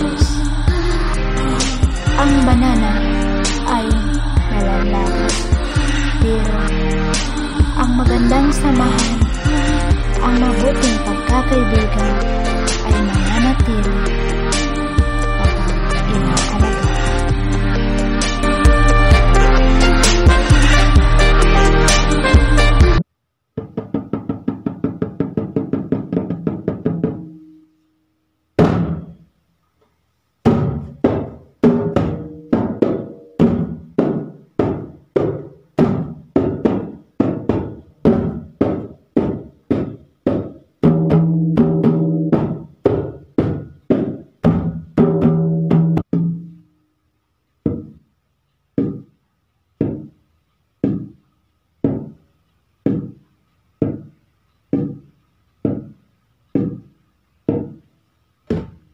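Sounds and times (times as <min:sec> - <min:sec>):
hand drum beating: 0:23.6 - 0:27.5, 0:30.5 - 0:46.6, 0:47.7 - 0:48.0, 0:48.8 - 0:49.1, 0:49.8 - 0:50.2, 0:50.8 - 0:51.2, 0:51.8 - 0:52.2, 0:52.9 - 0:53.2, 0:53.8 - 0:54.1, 0:56.6 - 0:56.9, 0:57.5 - 0:57.8.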